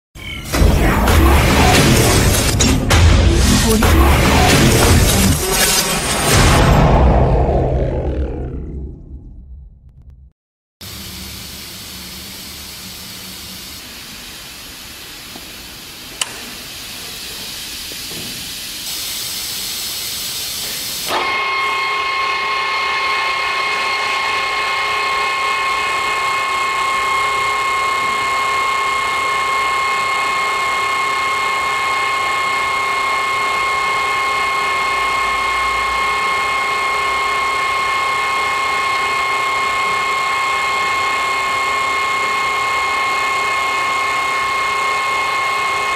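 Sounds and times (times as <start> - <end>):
drill press mechanical whine: 10.8 - 18.8, 20.3 - 45.9
air hissing: 10.8 - 21.1.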